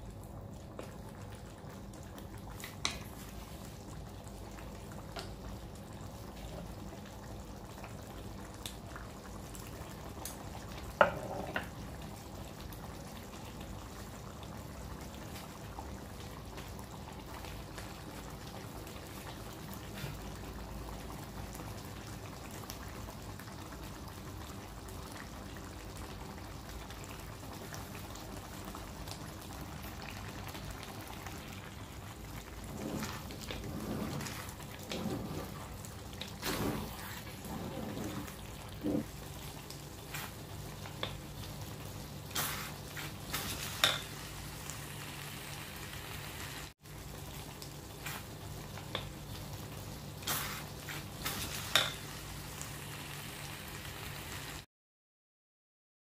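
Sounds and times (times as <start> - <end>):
stew bubbling and hissing: 16.9 - 24.0, 24.8 - 49.5, 50.1 - 54.6.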